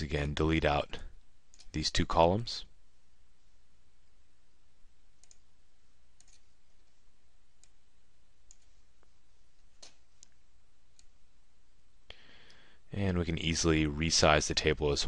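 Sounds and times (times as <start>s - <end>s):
faint low hum and hiss: 0.0s - 15.0s
computer mouse clicking: 5.2s - 5.5s, 6.2s - 7.0s, 7.6s - 7.8s, 8.4s - 8.7s, 9.7s - 11.2s.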